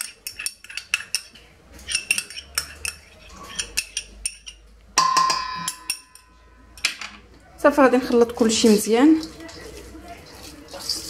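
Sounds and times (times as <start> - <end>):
spoon scraping metal bowl: 0.0 - 4.7, 8.2 - 11.0
metal bowl ringing: 5.0 - 6.8.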